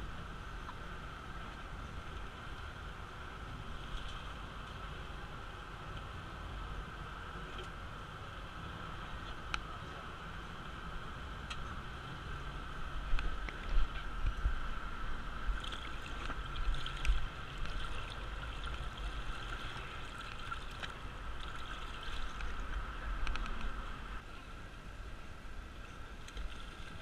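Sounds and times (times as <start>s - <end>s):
steady high hum: 0.0s - 27.0s
wind rumble on microphone: 0.0s - 27.0s
water splashing and gurgling: 13.1s - 24.2s.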